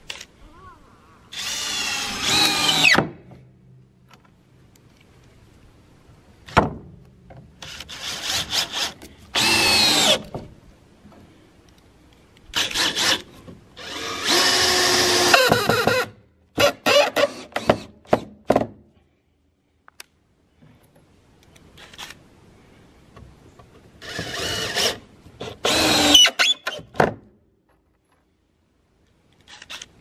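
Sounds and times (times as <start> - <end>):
cordless drill driving screws: 1.3 - 3.0, 7.6 - 10.3, 12.5 - 18.2, 24.0 - 26.8.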